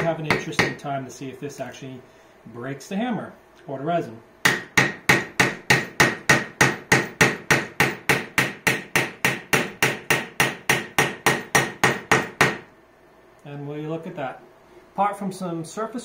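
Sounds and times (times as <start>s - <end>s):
hammer striking nail: 0.0s - 0.8s, 4.4s - 12.7s.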